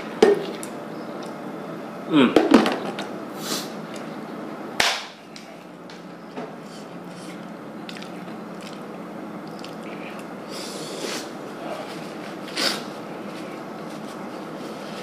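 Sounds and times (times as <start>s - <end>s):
faint steady hum: 0.0s - 15.0s
sniff: 3.4s - 3.8s, 10.5s - 11.3s, 12.5s - 12.9s.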